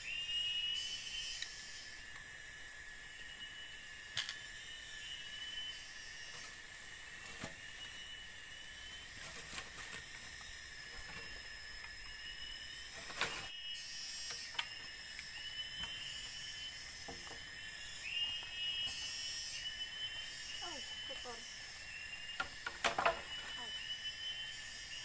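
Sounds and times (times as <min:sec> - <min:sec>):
insect chirps: 0:00.0 - 0:25.0
insects droning: 0:00.0 - 0:25.0
bamboo poles knocking: 0:17.0 - 0:17.5, 0:22.4 - 0:23.4.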